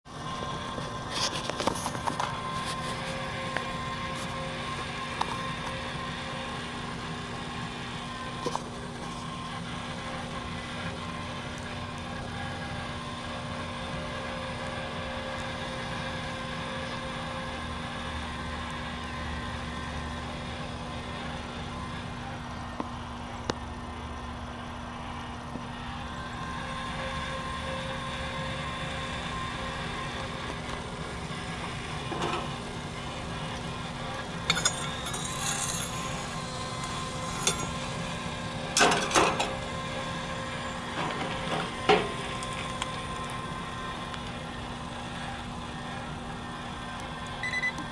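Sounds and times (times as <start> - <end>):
gas burner: 0.0 - 47.9
motor humming: 0.1 - 47.9.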